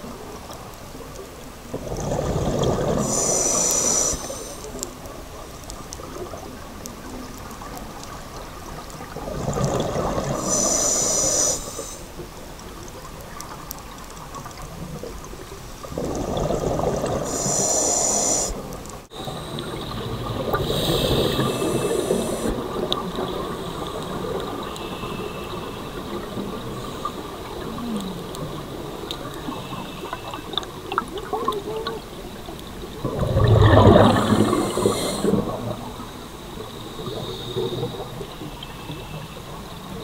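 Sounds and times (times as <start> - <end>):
exhaust bubbles hissing underwater: 0.0 - 13.4, 14.3 - 40.0
diver breathing through regulator: 3.0 - 4.7, 10.3 - 12.1, 17.2 - 18.6, 20.5 - 22.6, 34.1 - 35.7.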